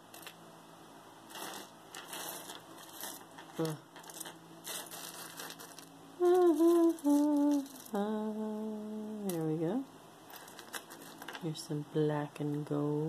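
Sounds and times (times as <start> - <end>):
earrings clicking and rustling: 0.0 - 0.4, 1.3 - 8.0, 10.3 - 11.5
woman humming: 6.2 - 9.8.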